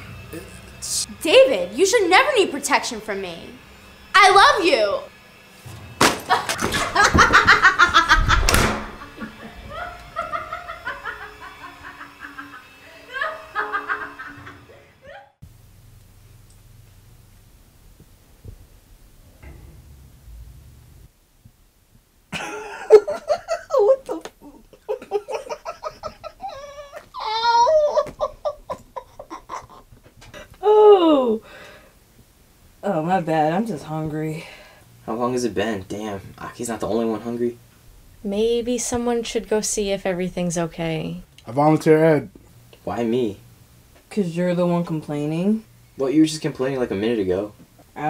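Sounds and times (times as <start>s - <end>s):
person laughing loudly: 6.3s - 15.3s, 22.4s - 30.5s
sharp knock: 8.2s - 9.1s.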